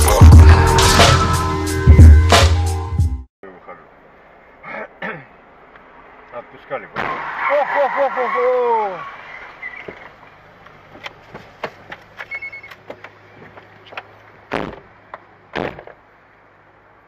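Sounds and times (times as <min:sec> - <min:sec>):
dull bumps: 0:10.8 - 0:16.0.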